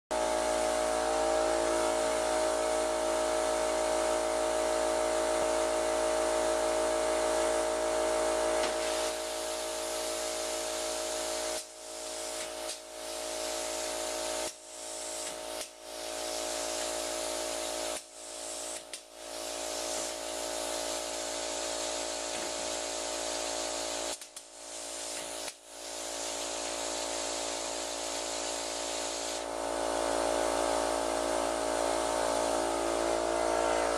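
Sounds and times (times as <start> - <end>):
mechanical hum: 0.1 - 33.9
hiss: 8.6 - 33.9.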